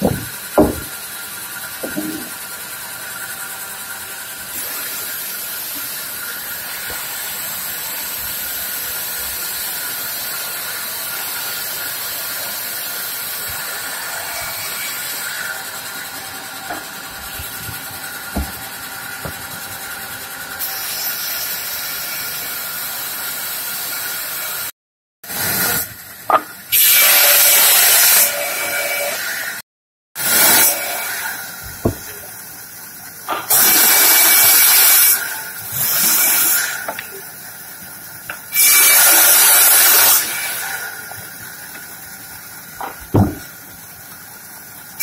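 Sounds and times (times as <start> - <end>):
wooden knocks: 0.0 - 1.0, 1.8 - 2.4, 16.6 - 19.8, 31.7 - 32.1, 42.8 - 43.5
band saw whining through log: 0.0 - 22.5, 30.2 - 32.3, 38.2 - 43.8.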